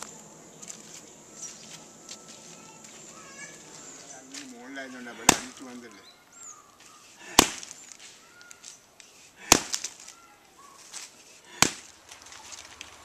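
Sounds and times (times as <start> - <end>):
faint birdsong: 0.0 - 13.0
wooden beater striking mud wall: 5.2 - 5.6, 11.6 - 11.9.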